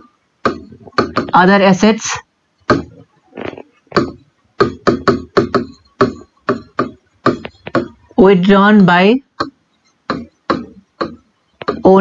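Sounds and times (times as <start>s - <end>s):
marker pen writing on whiteboard: 0.4s - 1.7s, 2.7s - 8.2s, 9.4s - 12.0s.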